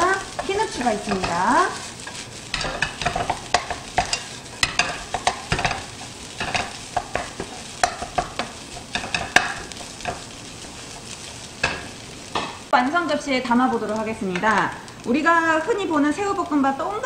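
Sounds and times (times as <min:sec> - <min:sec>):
wooden spatula scraping a pan: 0:00.0 - 0:12.7
rice sizzling: 0:00.0 - 0:17.0.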